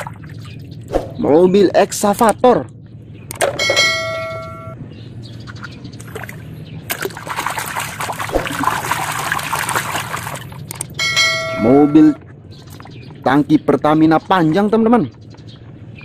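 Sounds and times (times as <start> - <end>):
bell-like chime: 3.6 - 4.8, 11.0 - 12.2
hand splashing in muddy water: 6.1 - 10.8.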